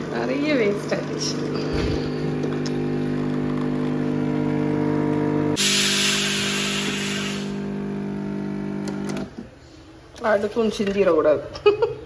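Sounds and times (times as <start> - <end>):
coffee machine pump humming: 0.0 - 9.5
steam hissing: 5.6 - 7.6.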